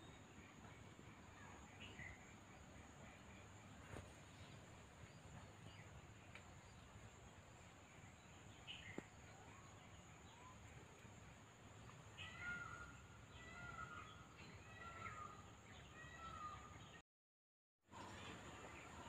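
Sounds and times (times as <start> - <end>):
faint bird calls: 12.1 - 17.0.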